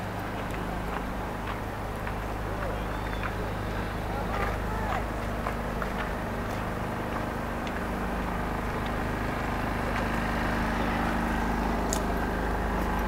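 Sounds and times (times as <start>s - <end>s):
distant city traffic rumble: 0.0s - 13.0s.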